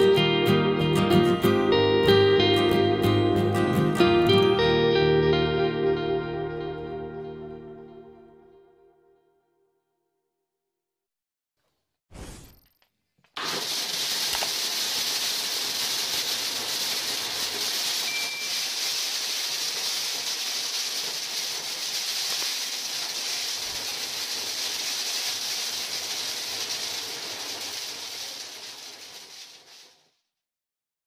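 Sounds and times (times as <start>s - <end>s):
angle grinder spinning: 13.3s - 29.9s
corn kernels rattling: 13.4s - 30.0s.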